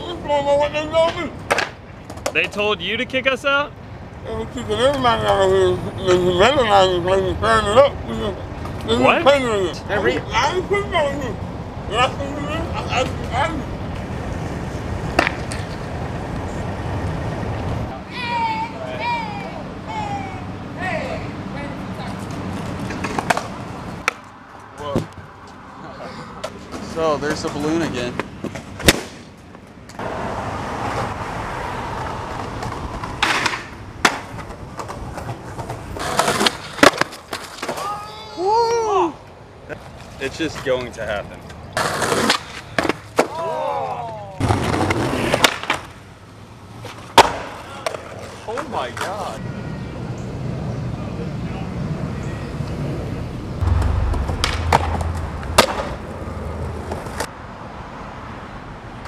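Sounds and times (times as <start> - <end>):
skateboard wheels rolling on concrete: 0.0 - 59.0
skateboard clacking on ground: 1.1 - 2.6, 15.1 - 15.9, 22.2 - 25.1, 32.3 - 38.2, 40.5 - 43.4, 44.4 - 46.0, 46.8 - 49.2, 53.8 - 56.0
skateboard scrape: 34.9 - 37.9, 41.8 - 42.8, 44.4 - 45.9.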